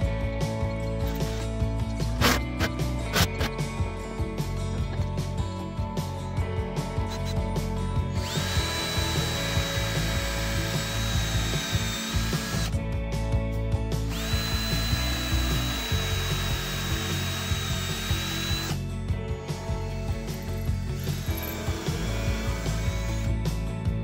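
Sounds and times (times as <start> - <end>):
cordless drill boring into wood: 8.1 - 12.8, 14.1 - 18.8, 19.8 - 23.4.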